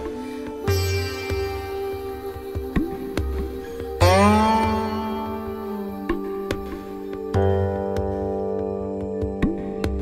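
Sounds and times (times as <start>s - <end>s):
soft musical backing: 0.0s - 10.0s
plucked zither note bending: 0.7s - 6.6s.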